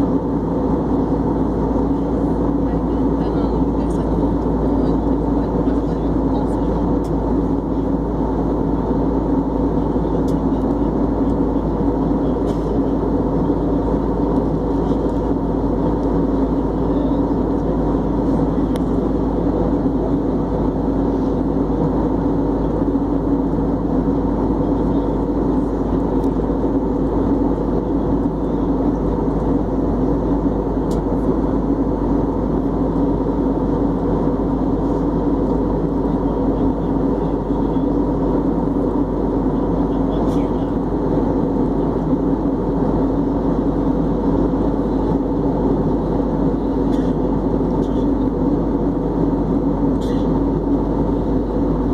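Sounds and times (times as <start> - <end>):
airplane cabin engine drone: 0.0 - 51.9.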